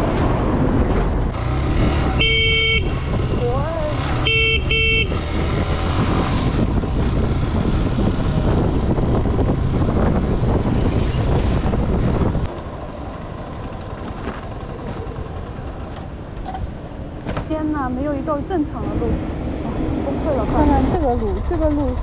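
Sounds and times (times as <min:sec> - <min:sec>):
tyre rumble on rough road: 0:00.0 - 0:22.0
wind noise: 0:00.0 - 0:22.0
motorcycle engine running: 0:01.5 - 0:22.0.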